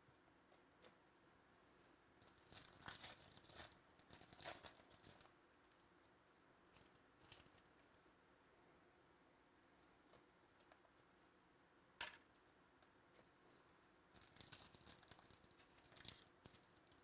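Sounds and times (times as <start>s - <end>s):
foil wrapper tearing and crinkling: 2.2s - 5.3s, 14.2s - 17.0s.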